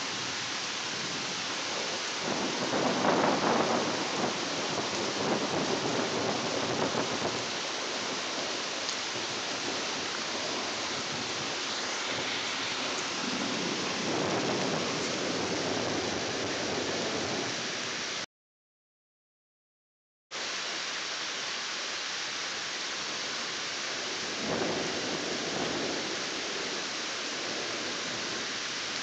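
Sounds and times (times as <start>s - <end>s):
thunder rumbling: 0.0s - 17.7s, 23.9s - 28.5s
rain hissing: 0.0s - 18.3s, 20.3s - 29.0s.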